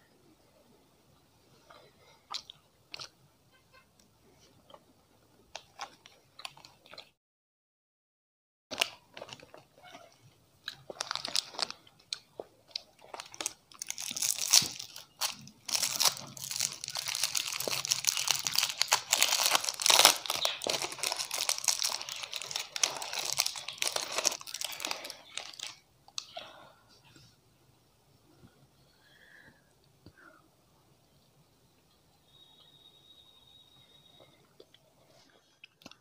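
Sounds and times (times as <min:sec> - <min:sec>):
wrapper crinkling and tearing: 0:10.7 - 0:11.8, 0:13.0 - 0:25.8.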